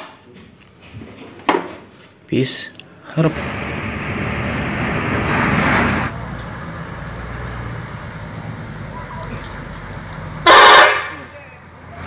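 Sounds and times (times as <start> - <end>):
road noise: 2.8 - 12.0
bus engine drone: 3.0 - 12.0.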